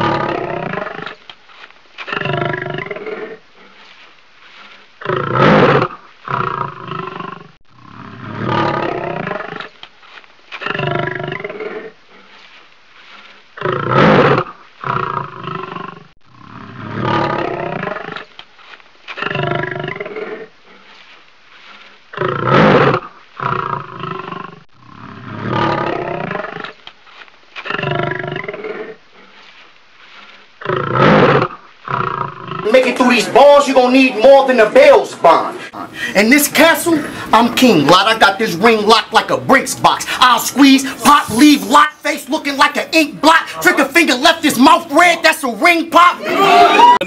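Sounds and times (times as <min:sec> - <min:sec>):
lion roaring and growling: 0:00.0 - 0:01.2, 0:02.1 - 0:03.4, 0:05.0 - 0:09.7, 0:10.6 - 0:12.0, 0:13.6 - 0:18.2, 0:19.2 - 0:20.5, 0:22.1 - 0:26.7, 0:27.6 - 0:29.0, 0:30.6 - 0:33.4.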